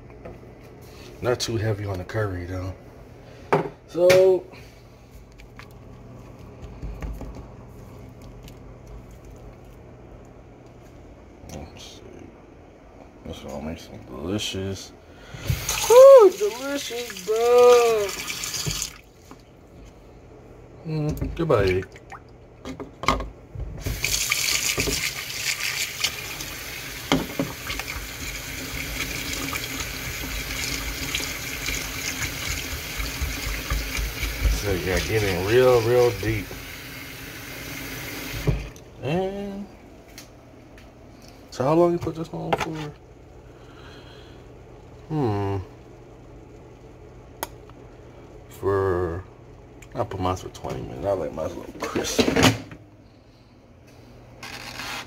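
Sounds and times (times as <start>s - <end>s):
steady low hum: 0.0s - 24.1s, 25.6s - 54.5s
faucet water running into sink: 15.5s - 19.1s, 23.8s - 38.6s.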